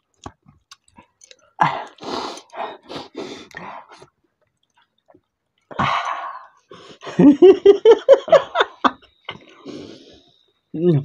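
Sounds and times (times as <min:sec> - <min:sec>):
man laughing loudly: 0:07.0 - 0:09.0.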